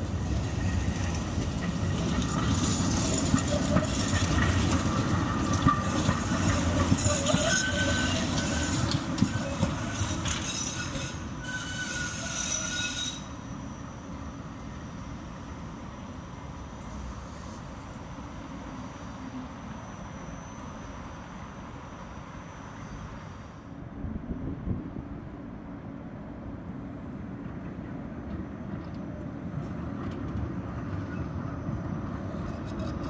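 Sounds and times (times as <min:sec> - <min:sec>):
tram rumble on rails: 0:00.0 - 0:33.0
wheel squeal: 0:05.6 - 0:14.1, 0:19.7 - 0:21.4.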